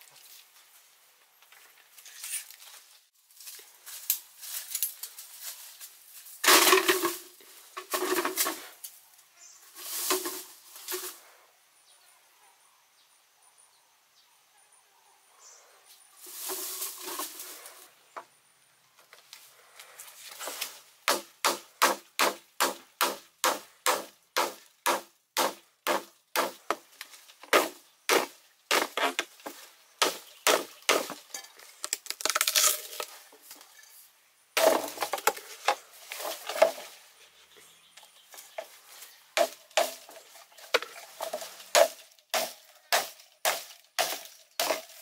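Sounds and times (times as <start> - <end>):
rustling in dry leaf litter: 2.6 - 11.3, 16.2 - 18.0, 38.1 - 45.0
knife chopping bamboo: 21.0 - 26.8, 27.5 - 29.3, 30.0 - 31.2, 41.7 - 45.0.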